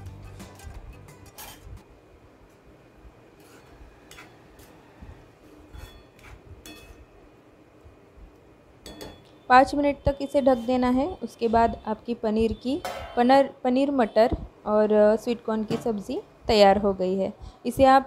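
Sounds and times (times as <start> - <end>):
metal spoon clinking on metal pan: 5.7 - 7.1, 8.8 - 9.3.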